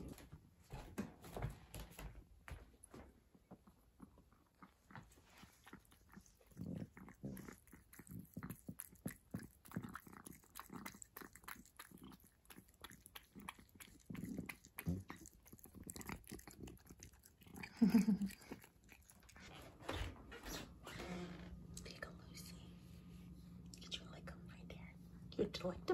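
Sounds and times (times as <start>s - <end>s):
cat chewing wet food: 2.8s - 19.8s.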